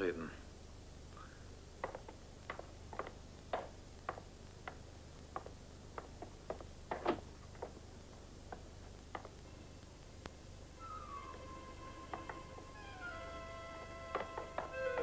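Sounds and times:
steady low hum: 0.0s - 15.0s
footsteps on a hard floor: 10.8s - 15.0s.

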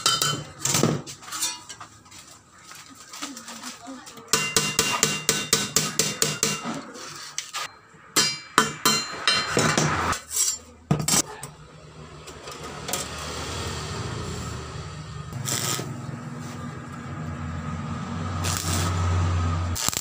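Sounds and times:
hammer striking metal sheet: 4.3s - 6.9s, 8.1s - 10.2s.

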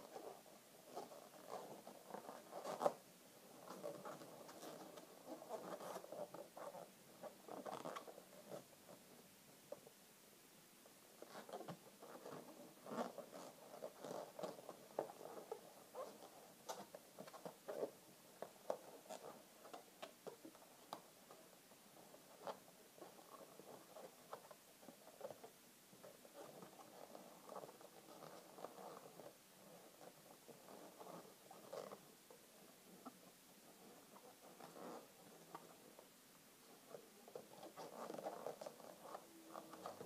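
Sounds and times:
balloons squeaking and rubbing: 0.0s - 3.0s, 3.6s - 8.7s, 11.2s - 18.0s.

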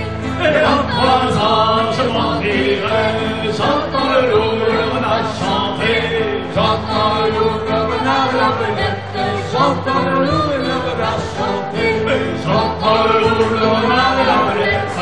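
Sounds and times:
acoustic guitar: 0.0s - 15.0s
group of voices singing: 0.0s - 15.0s.

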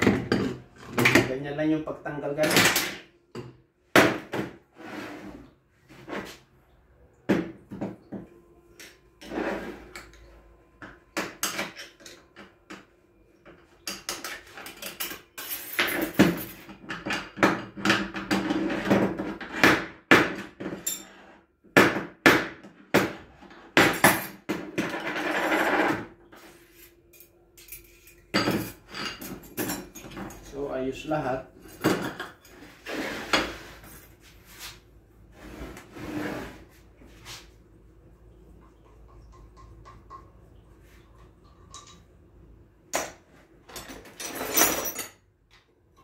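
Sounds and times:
metal parts clinking and clattering: 43.6s - 45.6s.

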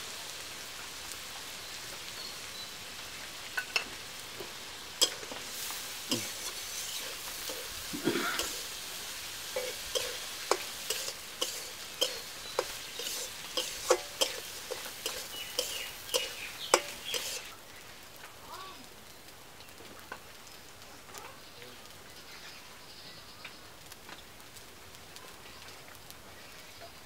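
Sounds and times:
food sizzling in a wok: 0.0s - 27.0s
spatula scraping wok: 3.6s - 17.5s
spatula clinking against pan: 5.0s - 5.3s, 9.6s - 17.5s.

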